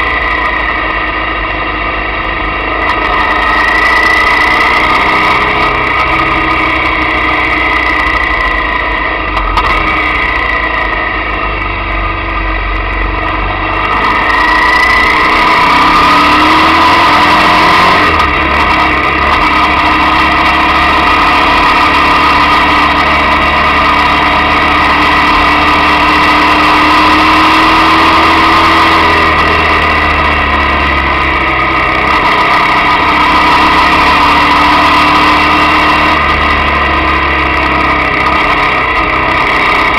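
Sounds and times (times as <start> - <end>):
motorcycle engine running: 0.0 - 39.9.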